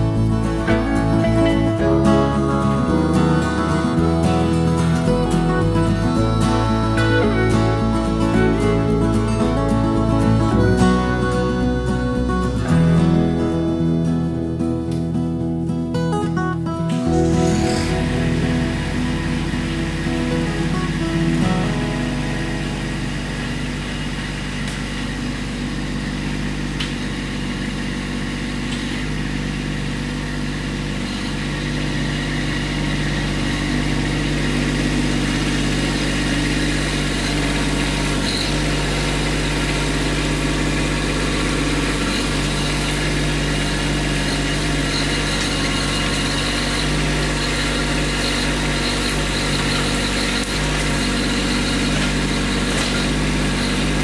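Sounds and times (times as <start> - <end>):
tractor diesel engine running: 0.0 - 54.0
faint high whine: 16.9 - 27.8.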